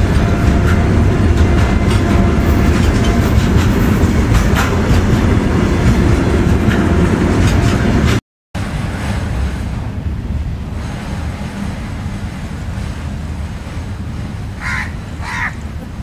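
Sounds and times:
wheels clicking over rail joints: 0.0s - 8.2s
freight wagons rumbling: 0.0s - 16.0s
steady rushing noise: 0.0s - 16.0s.

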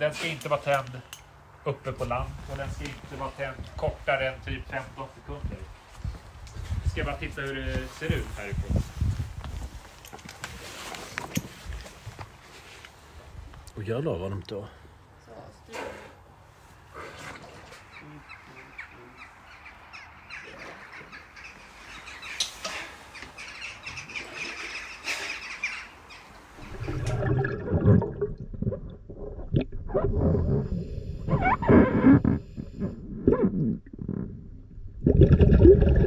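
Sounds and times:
flock of birds cawing: 17.9s - 27.0s
low underwater rumbling: 26.6s - 36.0s.

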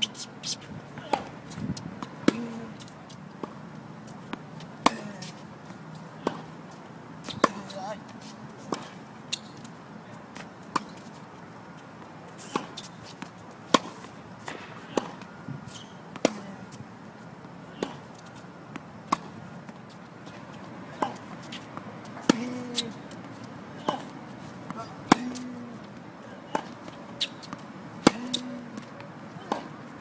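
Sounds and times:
tennis ball bouncing on court: 4.2s - 5.3s, 6.2s - 6.5s, 7.2s - 7.9s, 10.4s - 11.1s, 12.0s - 16.6s, 17.4s - 19.9s, 20.5s - 29.9s
tennis ball hit by rackets: 4.3s - 5.3s, 6.2s - 6.5s, 7.2s - 7.8s, 8.7s - 9.5s, 12.4s - 16.6s, 17.8s - 18.0s, 18.7s - 19.8s, 20.9s - 23.0s, 23.8s - 25.7s, 26.4s - 29.8s.

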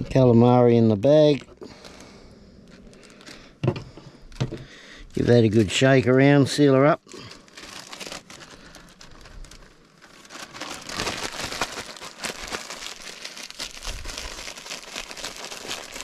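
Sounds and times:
bag crinkling while shaken: 7.2s - 16.0s.

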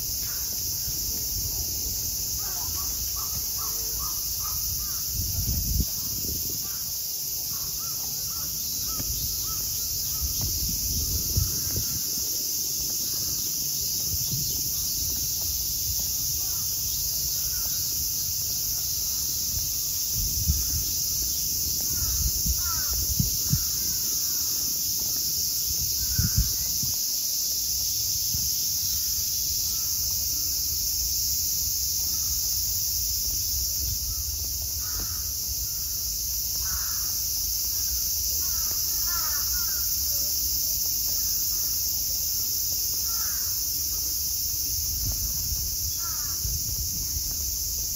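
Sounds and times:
high-pitched insect drone: 0.0s - 47.9s
crows cawing: 21.9s - 24.6s, 34.8s - 36.0s, 36.6s - 37.2s, 38.4s - 39.8s, 43.0s - 43.6s, 46.0s - 46.4s.

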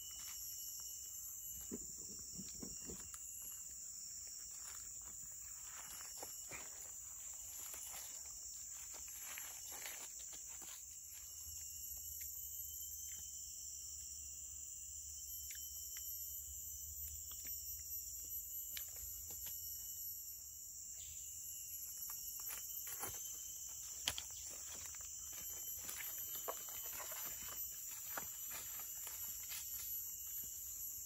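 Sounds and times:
insect chorus drone: 0.0s - 31.0s
rustling dry leaves: 4.4s - 11.2s.

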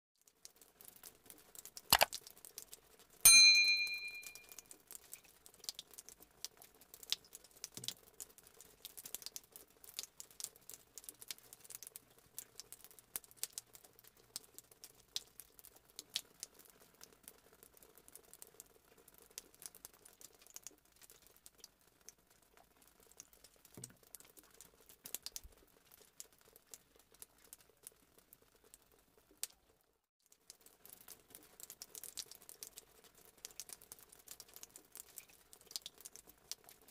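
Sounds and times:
bright electronic chime: 3.3s - 4.6s.

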